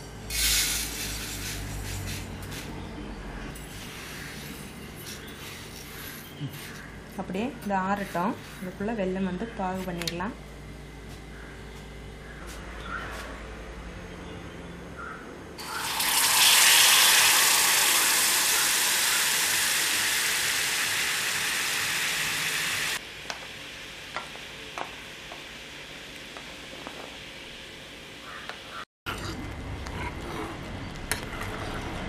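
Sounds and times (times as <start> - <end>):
water pouring into a pan: 15.6 - 23.0.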